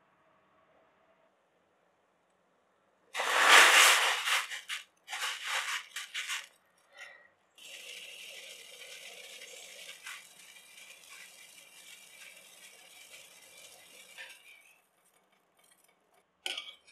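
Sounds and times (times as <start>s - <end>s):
metal spoon scraping pot: 3.2s - 16.9s
boiling water bubbling: 7.6s - 16.9s.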